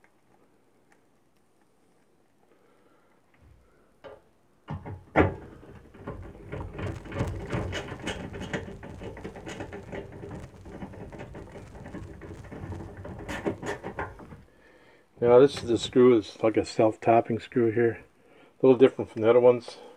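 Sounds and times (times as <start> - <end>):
clicking and rattling of parts: 4.0 - 14.4.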